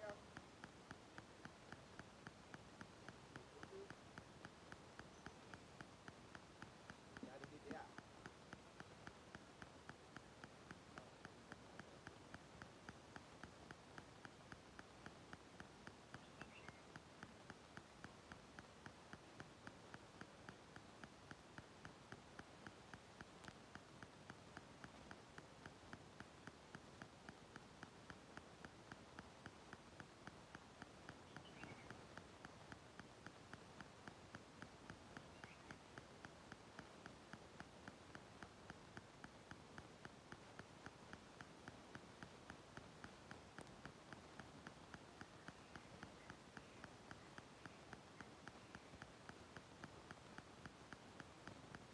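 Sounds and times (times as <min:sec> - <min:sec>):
faint chirps: 0:00.0 - 0:00.3, 0:01.6 - 0:08.1, 0:15.8 - 0:19.5, 0:31.0 - 0:34.4, 0:35.1 - 0:36.9, 0:42.2 - 0:51.9
faint background hiss: 0:00.0 - 0:51.9
steady soft ticking: 0:00.0 - 0:51.9.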